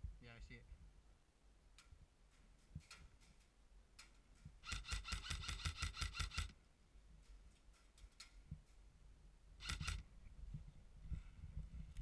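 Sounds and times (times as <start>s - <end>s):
faint clicks: 1.7s - 6.6s
airsoft rifle firing burst: 4.6s - 6.5s, 9.6s - 10.0s.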